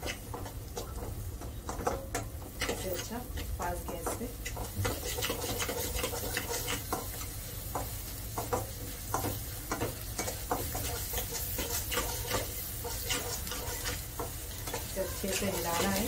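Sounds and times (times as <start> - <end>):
vegetables sizzling: 0.0 - 16.0
metal spatula scraping pot: 1.8 - 7.2, 10.2 - 16.0.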